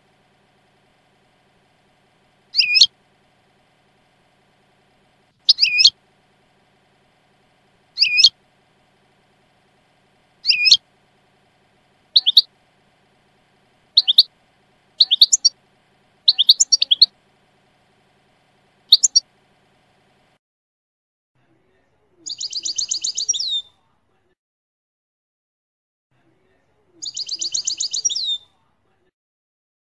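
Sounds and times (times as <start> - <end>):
goldfinch chirping and twittering: 2.5 - 2.9, 5.5 - 5.9, 8.0 - 8.3, 10.4 - 10.8, 12.2 - 12.5, 14.0 - 14.3, 15.0 - 15.5, 16.3 - 17.1, 18.9 - 19.2, 22.3 - 23.6, 27.0 - 28.4.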